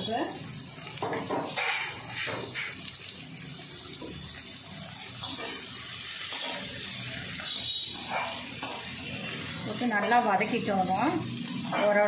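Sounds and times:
onions sizzling in hot oil: 0.0s - 12.0s
ladle stirring in pan: 0.9s - 2.9s.

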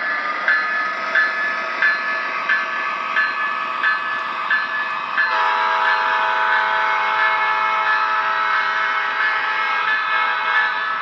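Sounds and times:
locomotive bell ringing: 0.0s - 11.0s
model train rolling on track: 0.0s - 11.0s
locomotive horn: 5.3s - 11.0s.

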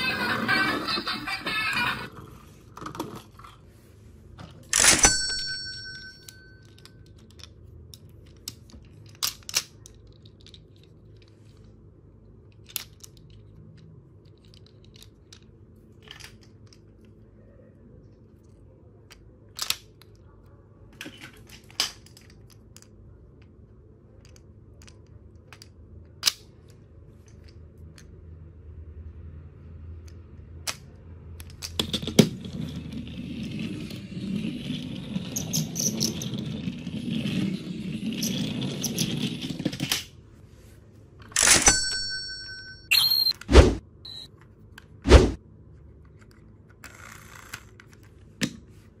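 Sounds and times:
plastic toy blocks clicking: 6.6s - 11.6s, 12.5s - 17.2s, 19.1s - 20.3s, 21.0s - 28.1s.

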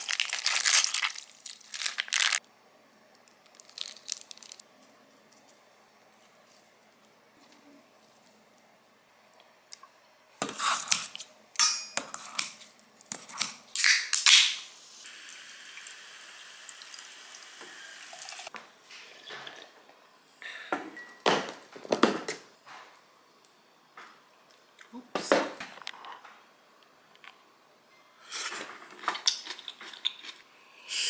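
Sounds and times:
soda can cracked open: 13.8s - 14.6s.

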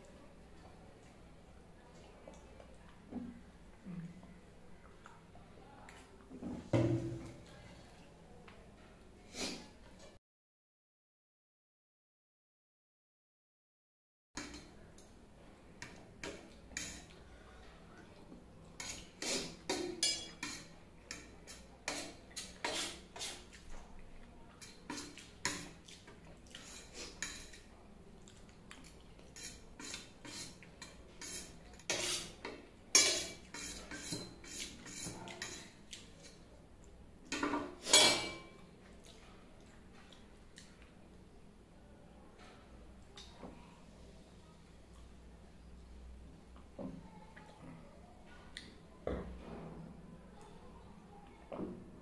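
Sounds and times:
fork scraping on metal plate: 18.8s - 23.5s, 26.6s - 27.6s, 29.4s - 36.4s, 37.8s - 38.5s.

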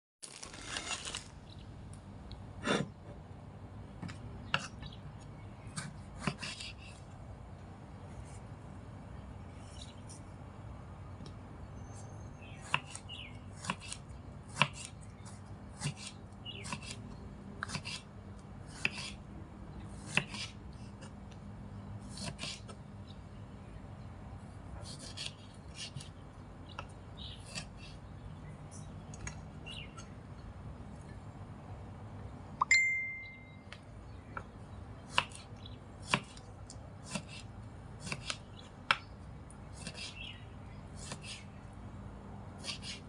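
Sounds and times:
knife scraping strokes: 42.6s - 43.0s.

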